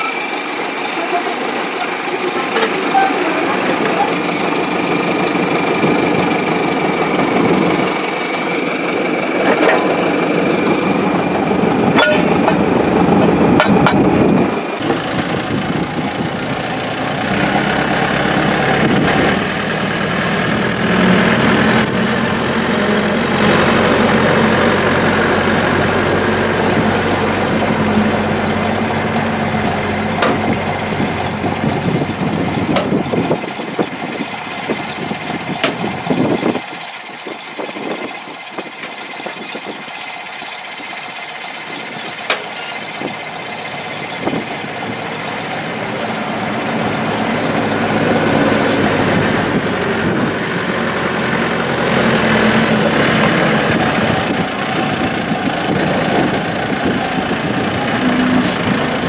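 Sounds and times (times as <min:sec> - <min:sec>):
bulldozer diesel engine running: 0:00.0 - 0:59.0
sharp metal clanks: 0:11.9 - 0:12.7, 0:13.6 - 0:14.1.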